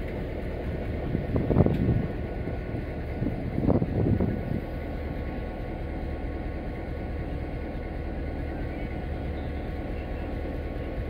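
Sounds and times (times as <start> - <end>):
turntable mechanical hum and rumble: 0.0 - 11.0.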